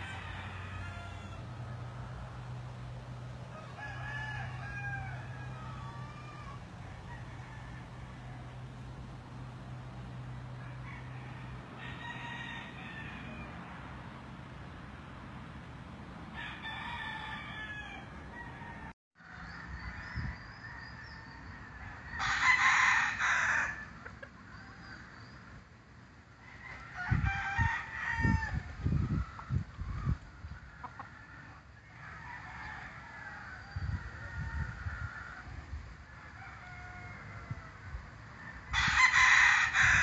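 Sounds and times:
roosters crowing: 0.0s - 15.0s, 15.8s - 40.0s
chickens clucking: 23.8s - 25.2s, 28.8s - 32.0s.

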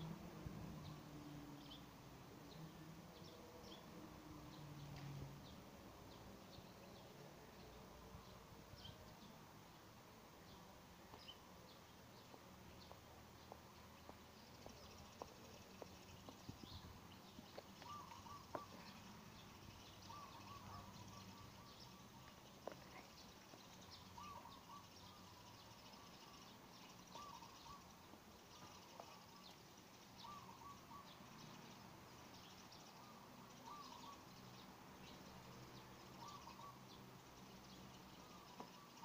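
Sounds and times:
bird calling: 12.2s - 31.6s, 32.4s - 34.6s, 36.0s - 37.0s, 38.1s - 39.0s.

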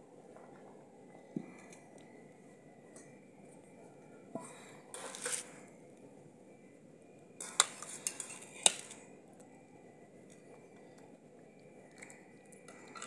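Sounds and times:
utensils clinking on steel pot: 7.4s - 8.9s.

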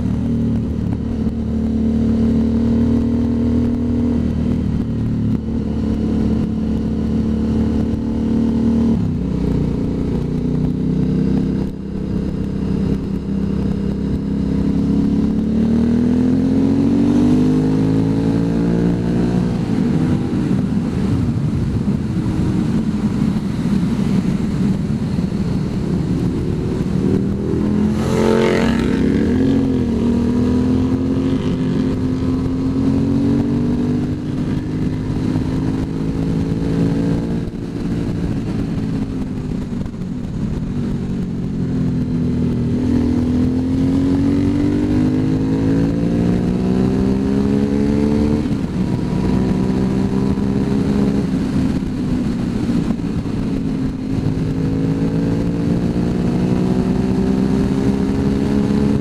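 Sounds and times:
motorcycle engine accelerating: 0.0s - 59.0s
wind rush: 0.0s - 59.0s.

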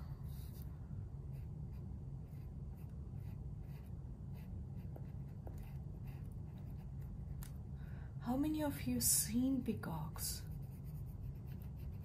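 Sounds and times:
steady low hum: 0.0s - 12.0s
pencil scratching on paper: 1.3s - 7.0s, 10.4s - 12.0s.

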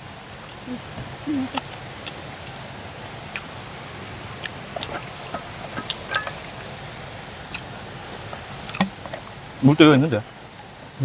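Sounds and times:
mountain stream rushing: 0.0s - 11.0s
picnic things clicking: 4.4s - 6.8s.

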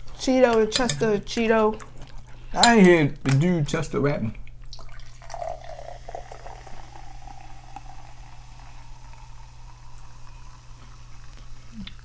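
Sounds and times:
sparkling water pouring over ice: 4.8s - 11.8s.

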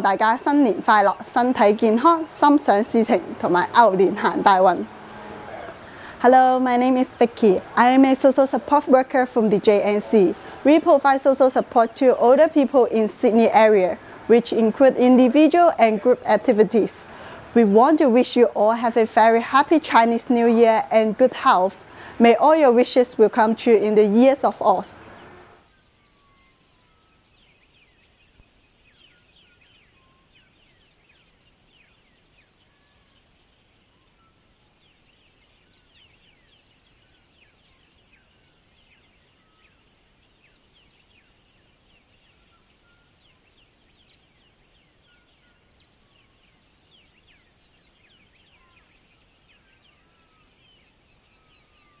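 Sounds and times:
birds chirping: 0.0s - 52.0s
low background hiss: 0.0s - 52.0s
bird whistle: 42.2s - 43.5s, 48.2s - 52.0s.

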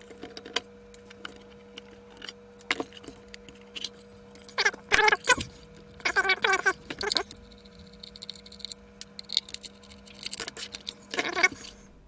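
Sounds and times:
plastic scraping and rubbing: 4.7s - 11.8s.

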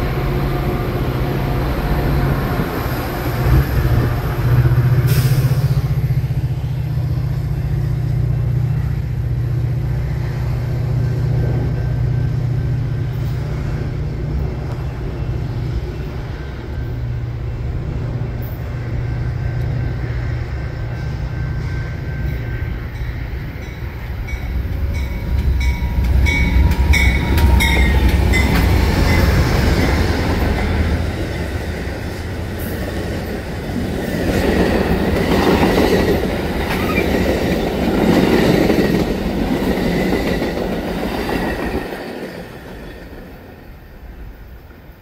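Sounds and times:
diesel locomotive drone: 0.0s - 45.0s
train wheels clattering on rails: 20.8s - 43.5s.

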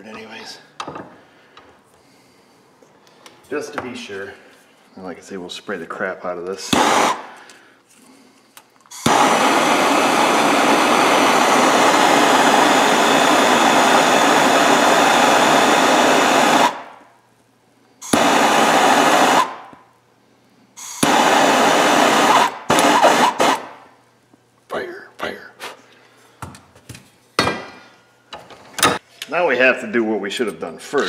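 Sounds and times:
gas torch flame hissing: 6.6s - 7.4s, 8.9s - 17.0s, 18.0s - 19.8s, 20.8s - 23.8s.

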